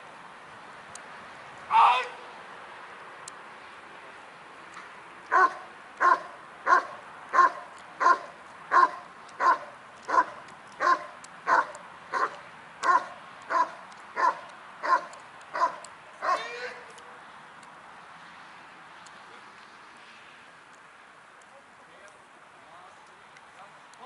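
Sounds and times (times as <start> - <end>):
dog barking: 5.3 - 16.5.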